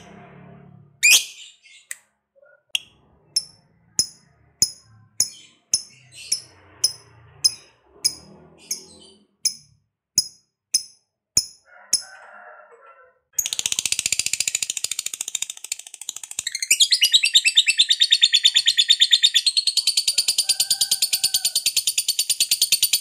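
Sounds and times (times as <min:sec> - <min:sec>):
lovebird chirping: 0:01.0 - 0:09.7, 0:16.2 - 0:20.0.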